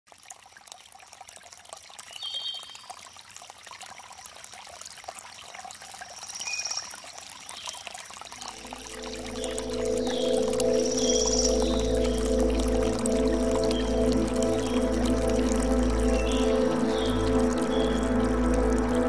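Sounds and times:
water pouring from a spout: 0.1 - 19.0
high chirps: 8.4 - 19.0.

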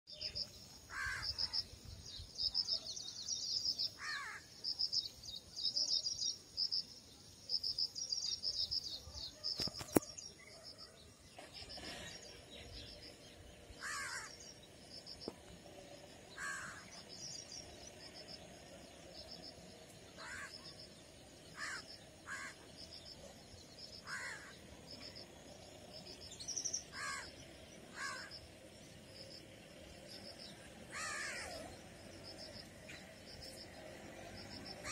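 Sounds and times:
birds chirping rapidly: 0.1 - 6.8, 7.6 - 34.9
low caw-like bird call: 0.9 - 1.6, 4.0 - 4.5, 13.8 - 14.4, 16.4 - 16.9, 20.2 - 20.5, 21.6 - 22.6, 24.0 - 24.6, 26.9 - 27.3, 27.9 - 28.3, 30.9 - 31.6.

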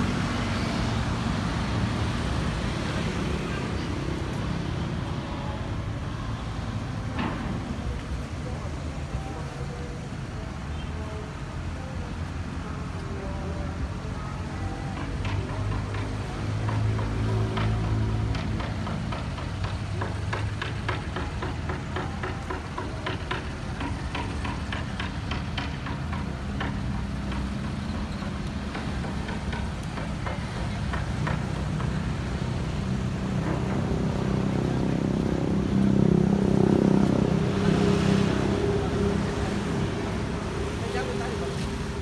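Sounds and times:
vehicle engines passing: 0.0 - 42.0
loud vehicle passing: 32.1 - 42.0.

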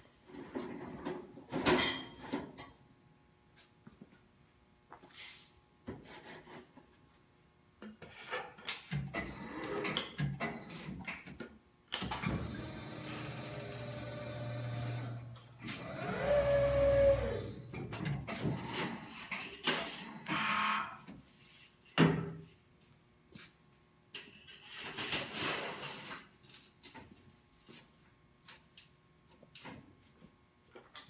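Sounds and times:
sheet-metal folder motor hum: 12.1 - 19.1.

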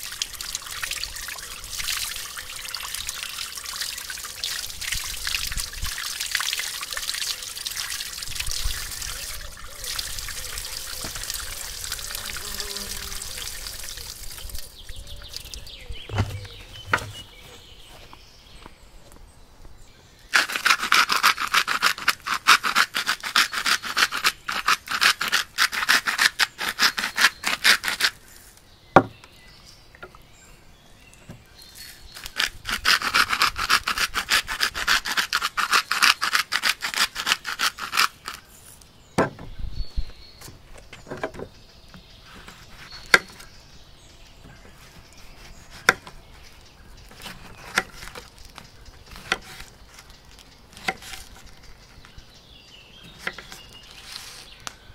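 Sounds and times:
gritty rubbing on a duck: 20.4 - 28.5, 32.2 - 38.7.

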